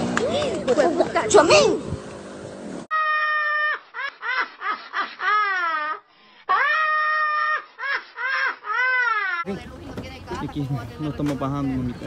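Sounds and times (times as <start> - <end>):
elderly woman cackling laugh: 3.5 - 9.5.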